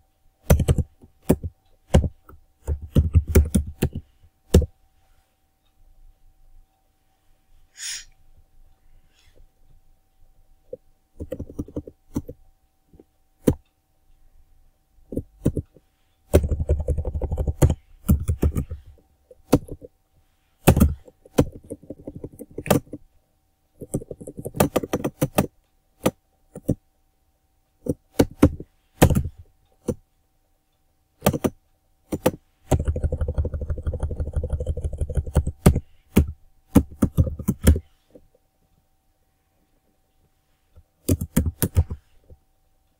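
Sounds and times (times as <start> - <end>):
typing on computer keyboard: 0.4 - 4.7, 10.7 - 13.6, 15.1 - 19.9, 20.6 - 23.0, 23.8 - 26.8, 27.8 - 30.0, 31.2 - 38.2, 41.0 - 42.1.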